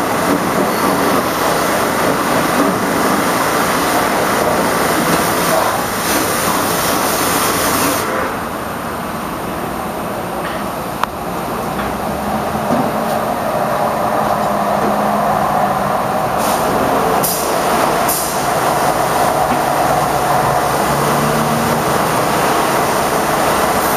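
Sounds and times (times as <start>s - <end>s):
pressure washer spraying water: 4.8s - 8.2s.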